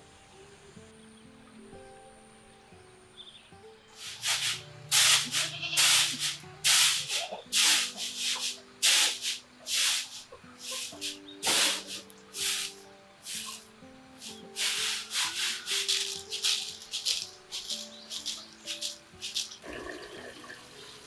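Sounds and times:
grains swishing in bamboo tray: 0:04.0 - 0:19.6.

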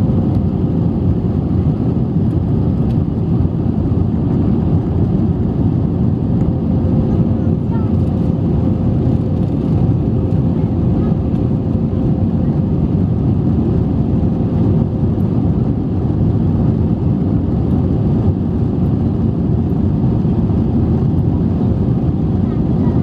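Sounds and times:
jet engines and airflow in cabin: 0:00.0 - 0:23.0.

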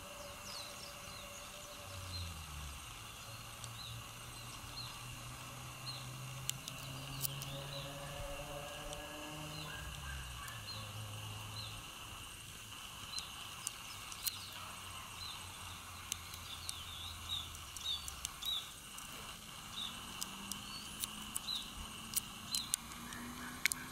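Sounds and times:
faint clicks: 0:02.8 - 0:07.6, 0:12.9 - 0:23.9.

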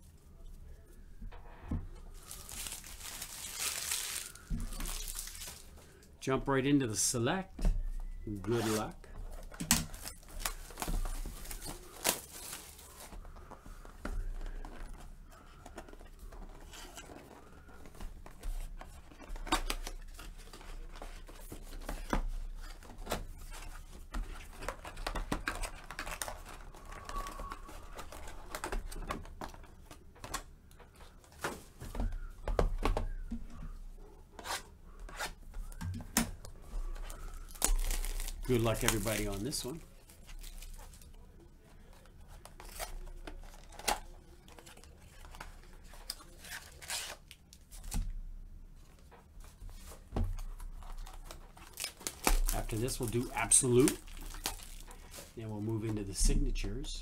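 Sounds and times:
plastic shrink wrap crinkling: 0:02.0 - 0:06.1, 0:08.3 - 0:13.6, 0:35.7 - 0:48.0, 0:49.7 - 0:56.2.

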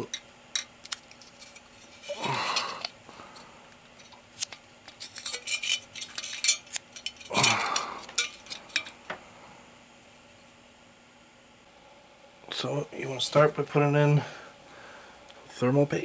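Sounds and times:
rustling handling noise: 0:00.8 - 0:09.2
metal heatsink clinks and taps: 0:04.9 - 0:09.2.

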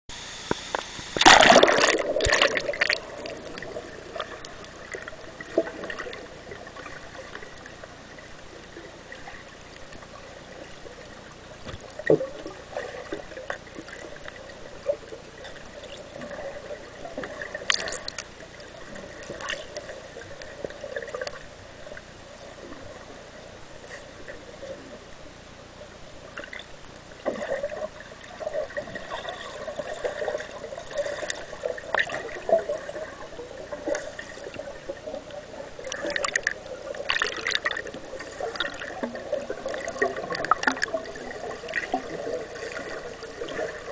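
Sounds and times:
muffled underwater gurgling: 0:00.1 - 0:43.9
small clicks underwater: 0:00.4 - 0:07.9, 0:08.6 - 0:16.5, 0:17.2 - 0:22.1, 0:26.3 - 0:33.1, 0:33.7 - 0:43.9
loud water splash: 0:01.2 - 0:03.0.

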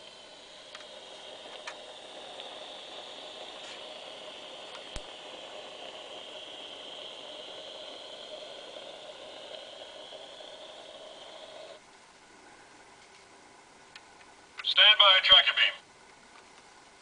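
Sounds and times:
toy speaker hissing hum: 0:00.0 - 0:11.8.

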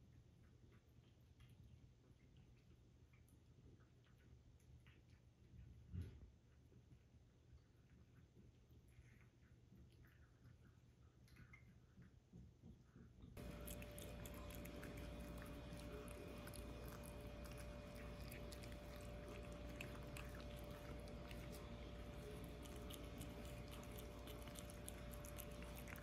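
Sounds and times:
cats chewing wet food: 0:13.4 - 0:26.0
faint steady hum: 0:13.4 - 0:26.0.

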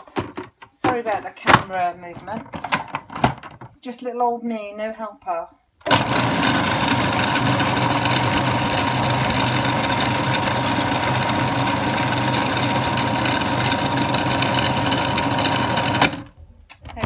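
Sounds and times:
food processor motor running: 0:05.8 - 0:16.3.

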